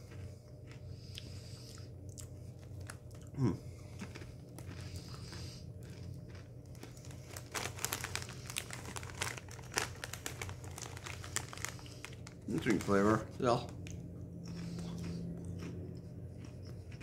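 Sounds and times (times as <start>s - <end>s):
plastic bag crinkling: 6.3s - 14.0s.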